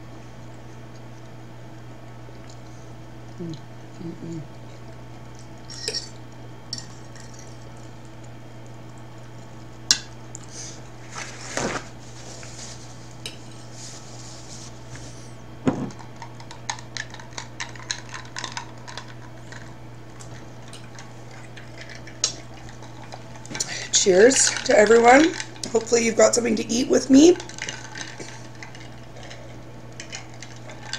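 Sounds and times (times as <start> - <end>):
steady low hum: 0.0 - 30.9.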